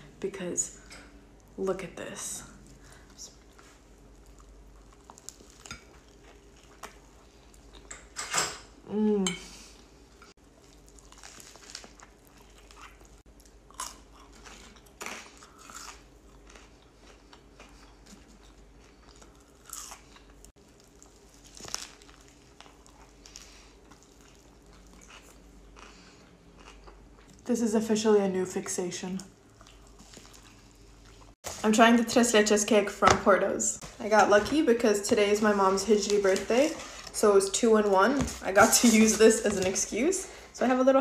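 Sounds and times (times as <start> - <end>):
chewing sandwich with crunches: 3.4 - 7.9, 10.4 - 27.4, 29.5 - 31.4.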